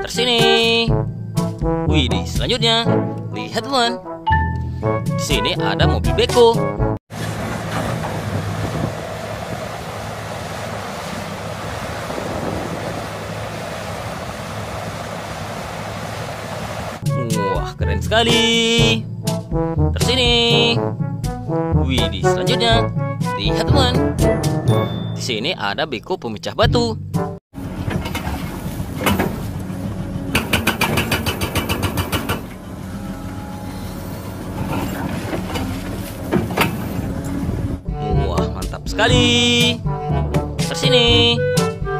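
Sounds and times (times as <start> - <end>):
excavator diesel engine under load: 7.1 - 17.0, 27.6 - 37.8
wind on microphone: 7.8 - 17.0, 36.7 - 37.9
hydraulic breaker hammering rock: 30.3 - 32.6.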